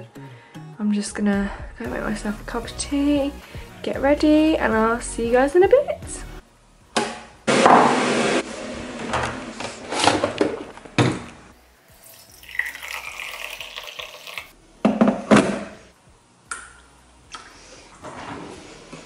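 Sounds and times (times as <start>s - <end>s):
water pouring and splashing: 12.0s - 14.5s
objects knocking on worktop: 14.8s - 15.8s.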